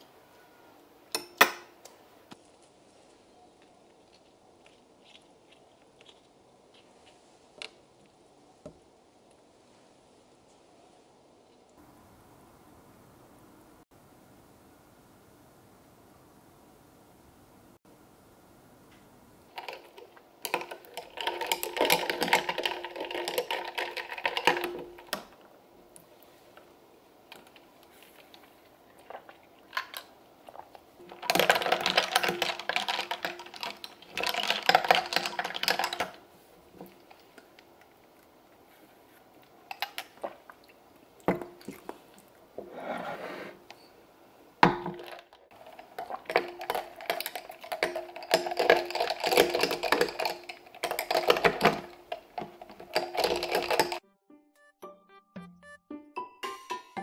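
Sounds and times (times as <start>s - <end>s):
ice cubes clinking in glasses: 19.6s - 25.3s, 31.2s - 36.2s, 45.0s - 54.0s.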